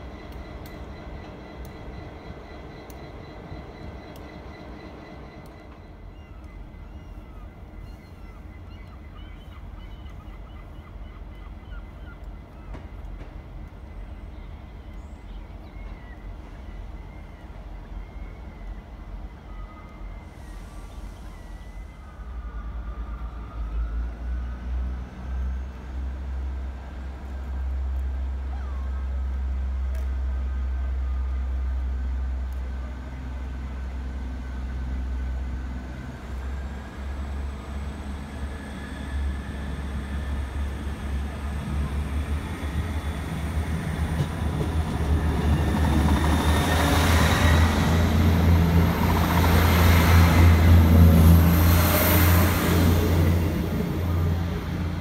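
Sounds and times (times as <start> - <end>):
train engines droning: 0.0 - 55.0.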